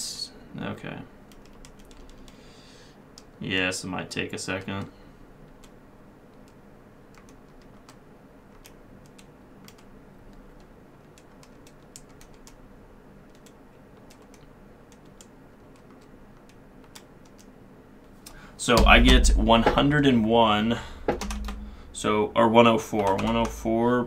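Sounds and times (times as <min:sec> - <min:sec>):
low steady hum: 0:00.0 - 0:24.0
calculator keys clicking: 0:08.6 - 0:12.6, 0:23.0 - 0:23.5.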